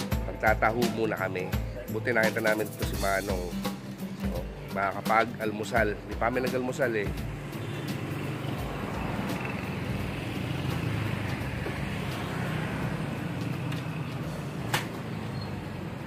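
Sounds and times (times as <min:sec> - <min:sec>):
vehicle engine humming: 0:07.2 - 0:16.0.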